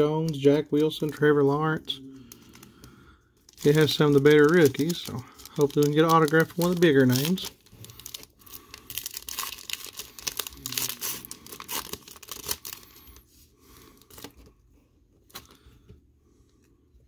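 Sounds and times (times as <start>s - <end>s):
foil wrapper tearing and crinkling: 3.5s - 13.0s.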